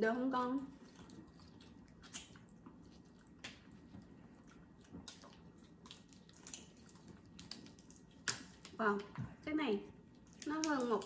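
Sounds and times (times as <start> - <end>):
wet squishing: 0.6 - 11.0
chewing: 0.7 - 8.8.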